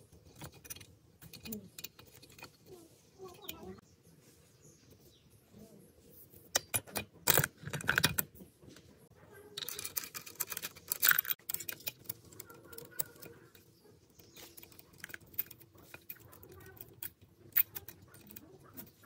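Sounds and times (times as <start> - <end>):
chain links rattling: 0.2 - 3.8, 9.4 - 19.0.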